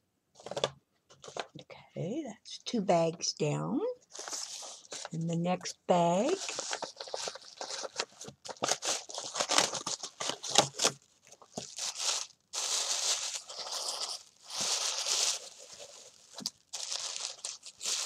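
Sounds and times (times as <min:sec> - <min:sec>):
tissue paper crinkling: 0:00.4 - 0:01.6, 0:04.1 - 0:05.2, 0:06.1 - 0:18.0.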